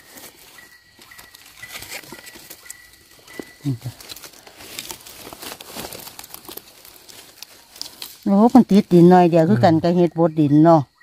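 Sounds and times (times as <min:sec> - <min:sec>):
dry leaves crackling and rustling: 0:00.0 - 0:09.6.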